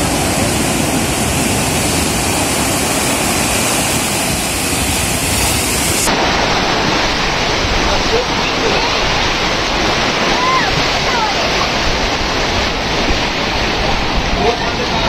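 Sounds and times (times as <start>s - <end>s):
sea surf breaking: 0.0s - 15.0s.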